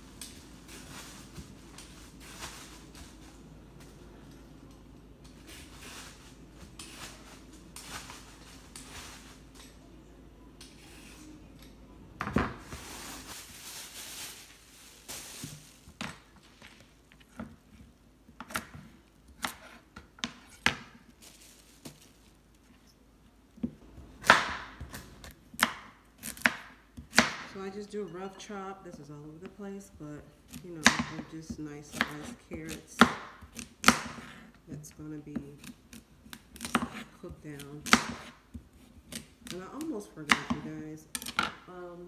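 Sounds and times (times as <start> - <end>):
knife chopping on cutting board: 35.6 - 37.1.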